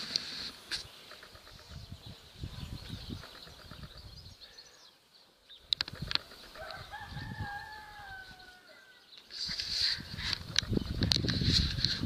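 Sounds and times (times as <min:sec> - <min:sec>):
rustling: 0:00.0 - 0:01.3
sharp clicks: 0:05.7 - 0:06.8
rooster crowing: 0:06.5 - 0:09.0.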